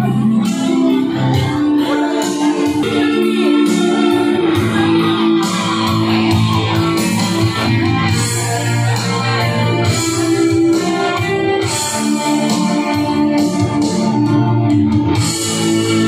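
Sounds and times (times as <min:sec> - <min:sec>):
karaoke backing music with guitar: 0:00.0 - 0:16.0.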